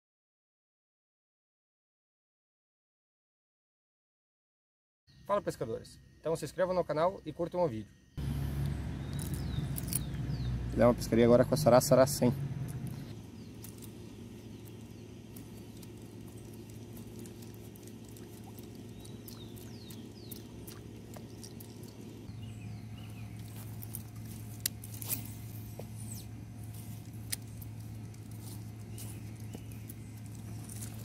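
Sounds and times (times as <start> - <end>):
low hum: 7.9 - 31.0.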